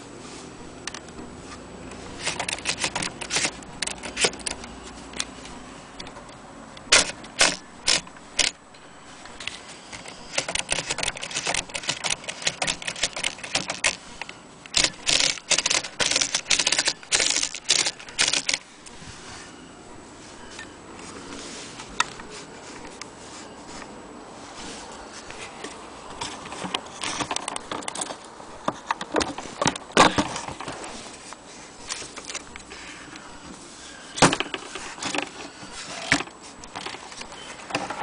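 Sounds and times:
manual typewriter typing: 2.1 - 8.6, 9.4 - 18.7, 26.1 - 30.8.

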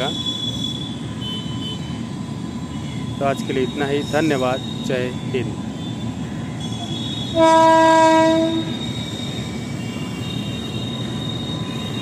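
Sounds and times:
train rumbling over steel bridge: 0.0 - 12.0
locomotive horn blast: 6.7 - 8.8.

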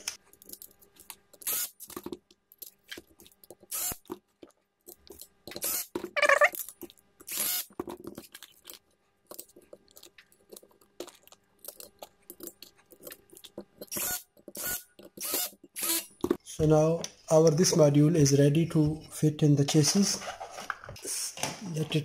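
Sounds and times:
parts and wiring being handled: 0.0 - 17.2, 19.6 - 22.0.

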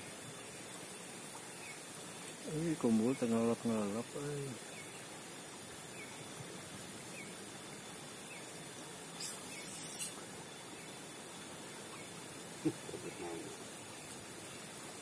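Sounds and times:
outdoor background hiss: 0.0 - 15.0
brief loud hiss: 9.2 - 10.2
small animal chirping: 9.2 - 10.2.

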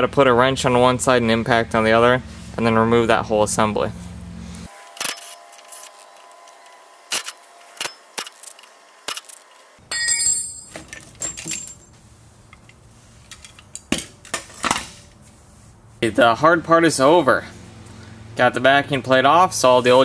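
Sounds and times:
metal tools and bolts clinking: 5.0 - 6.3, 7.1 - 12.0
impact wrench rattling: 7.1 - 11.9.

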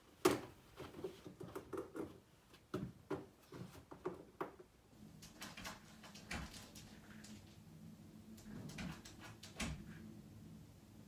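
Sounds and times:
puppy scratching and tapping: 5.2 - 7.6, 8.4 - 9.8.

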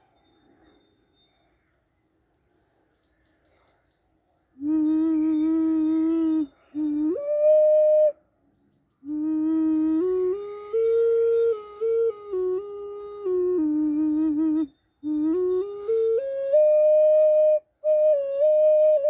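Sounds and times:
ocarina playing slow notes: 4.6 - 8.2, 9.0 - 19.0.

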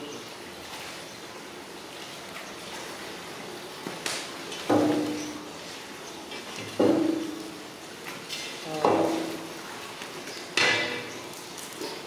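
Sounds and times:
heavy knocks with ringing tone: 4.7 - 5.4, 6.8 - 7.4.

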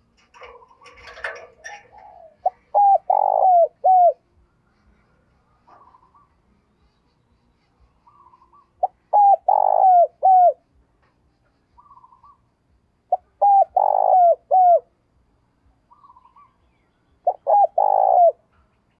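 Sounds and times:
dove cooing: 0.0 - 5.0, 5.7 - 6.4, 8.1 - 10.6, 13.1 - 14.9, 17.2 - 18.6.

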